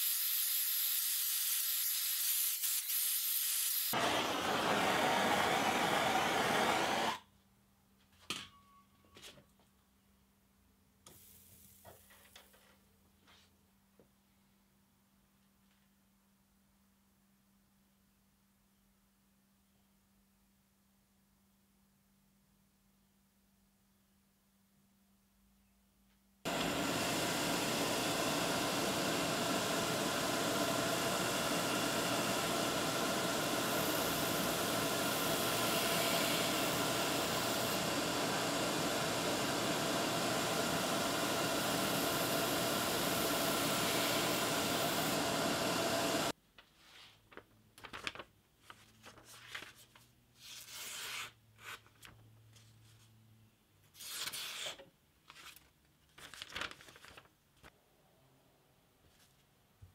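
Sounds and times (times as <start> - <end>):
belt grinder whining: 3.9 - 7.2.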